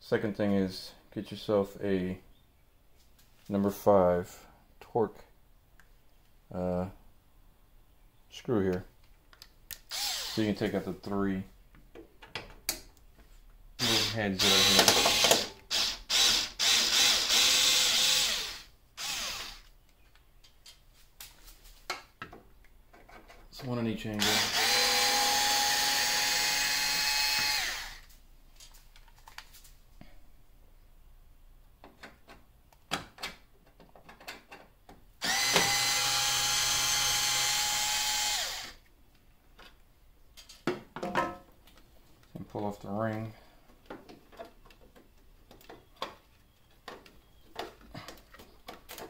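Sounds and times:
electric screwdriver running: 0:09.9 - 0:10.4, 0:13.8 - 0:19.7, 0:24.2 - 0:28.1, 0:35.2 - 0:38.8.

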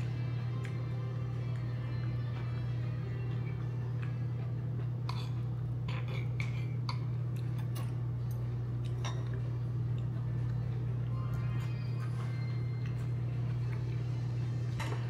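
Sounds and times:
steady low hum: 0:00.0 - 0:15.0
utensils clinking against bowl: 0:05.1 - 0:09.5.

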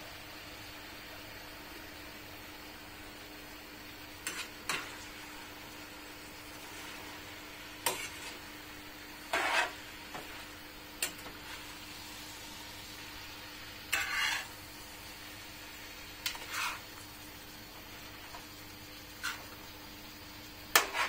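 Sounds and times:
stew sizzling in a pan: 0:00.0 - 0:21.0
utensil scraping metal pan: 0:07.8 - 0:08.4, 0:09.3 - 0:10.2, 0:13.9 - 0:14.5, 0:16.2 - 0:16.8, 0:20.8 - 0:21.0.

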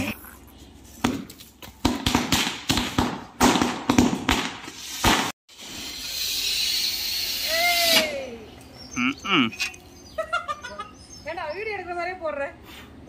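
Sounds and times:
firecrackers banging: 0:01.0 - 0:06.8.

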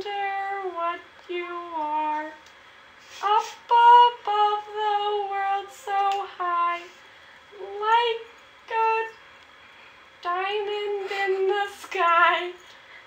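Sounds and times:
girl singing unaccompanied: 0:00.0 - 0:02.4, 0:03.2 - 0:09.2, 0:10.2 - 0:12.6.

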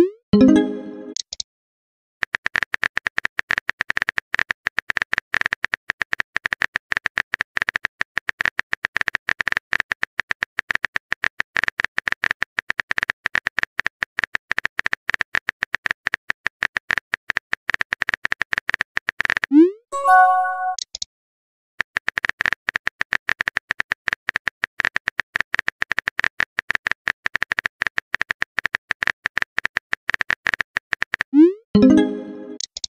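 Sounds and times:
keyboard typing clicks: 0:31.1 - 0:32.9.

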